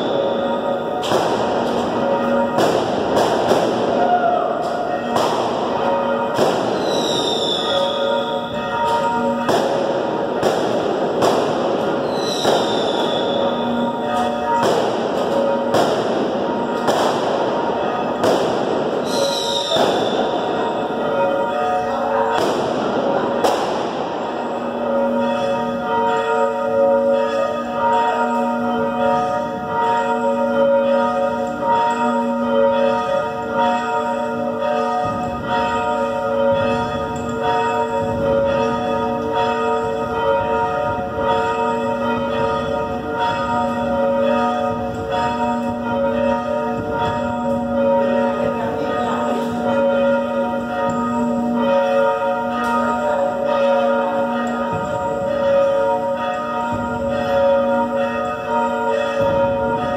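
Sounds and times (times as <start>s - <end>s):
loud fireworks bangs: 0.0s - 26.2s, 54.3s - 59.9s
church bells ringing: 0.0s - 59.9s.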